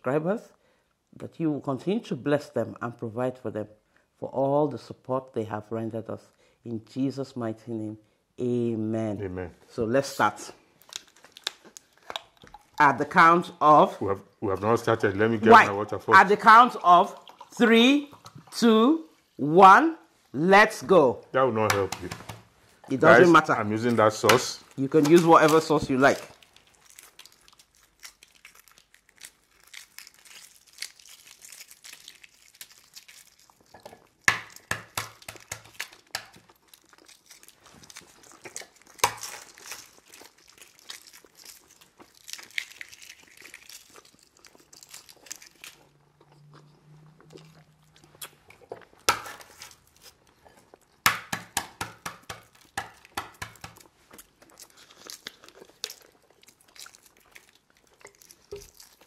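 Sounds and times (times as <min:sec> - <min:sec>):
eggshells cracking and crinkling: 0:10.6 - 0:19.2, 0:21.6 - 0:46.4, 0:47.3 - 0:59.0.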